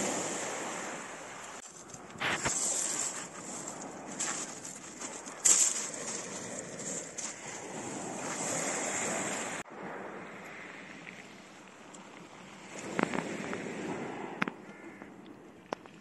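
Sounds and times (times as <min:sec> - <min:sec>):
sea waves washing over pebbles: 0:00.0 - 0:15.2
sharp crackles: 0:01.6 - 0:08.4.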